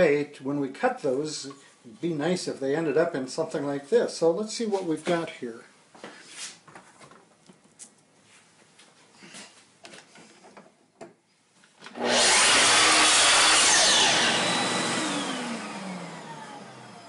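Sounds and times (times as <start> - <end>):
miter saw cutting wood: 11.9 - 17.0.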